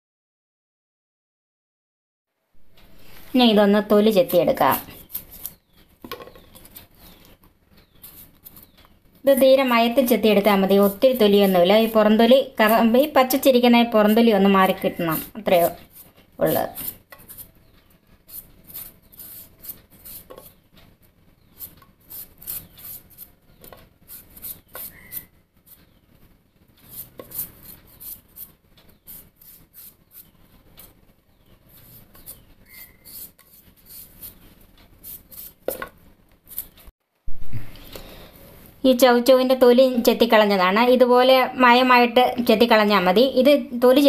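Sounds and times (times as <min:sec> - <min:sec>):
knife scraping vegetable skin: 0:04.2 - 0:05.8, 0:07.8 - 0:17.5, 0:18.1 - 0:20.6, 0:21.4 - 0:26.0, 0:26.8 - 0:31.0, 0:31.7 - 0:36.9.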